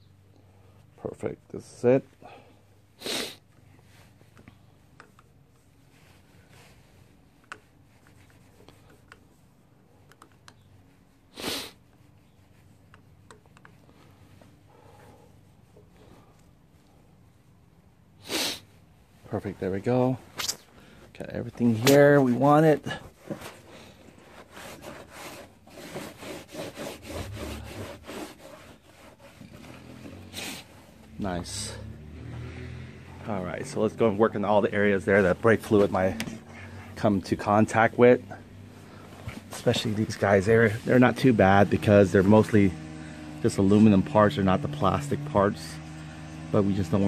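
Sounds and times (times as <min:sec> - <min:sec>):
cloth rubbing plastic: 0:03.8 - 0:09.8, 0:10.6 - 0:17.0, 0:21.4 - 0:31.2, 0:33.8 - 0:42.6.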